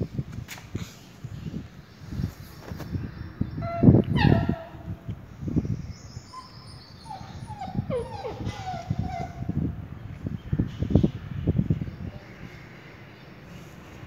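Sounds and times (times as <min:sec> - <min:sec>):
puppy whimpering: 0:03.6 - 0:04.9, 0:06.3 - 0:09.6.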